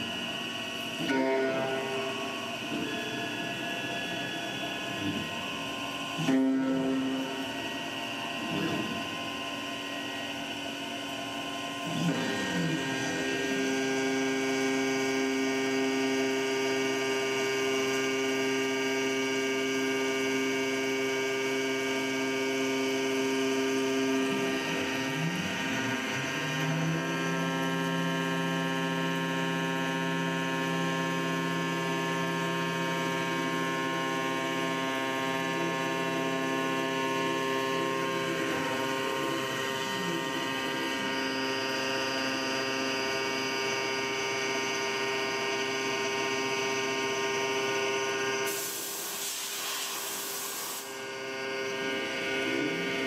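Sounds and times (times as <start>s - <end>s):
cnc mill spindle whine: 0.0s - 53.0s.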